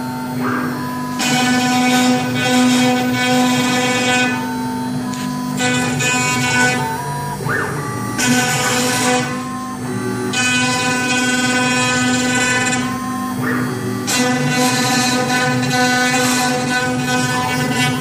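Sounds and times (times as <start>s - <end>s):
router spindle milling wood: 10.4s - 18.0s.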